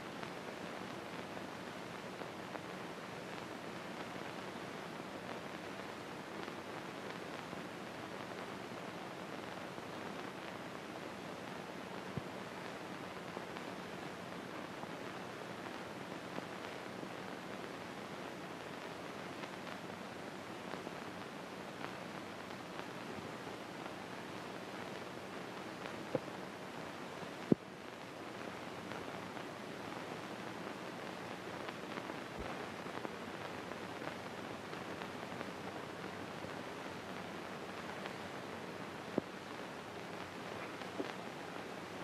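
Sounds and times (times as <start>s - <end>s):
film soundtrack hiss and crackle: 0.0s - 42.0s.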